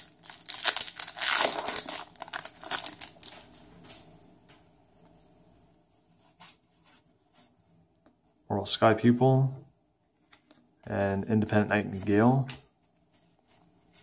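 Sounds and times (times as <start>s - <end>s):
foil wrapper crinkling: 0.0s - 3.6s.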